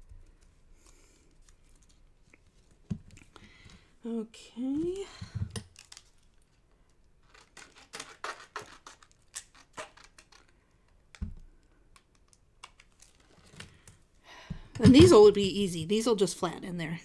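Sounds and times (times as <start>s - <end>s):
scissors snipping plastic sheet: 7.3s - 10.5s.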